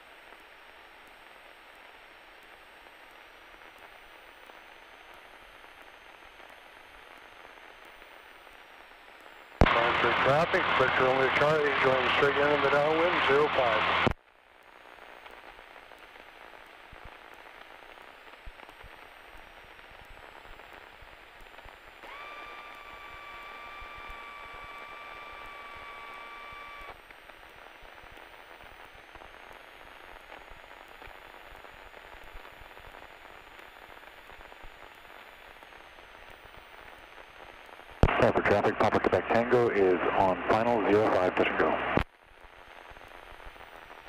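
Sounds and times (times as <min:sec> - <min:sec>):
radio intercom hiss: 0:09.6 - 0:14.2, 0:34.4 - 0:42.1.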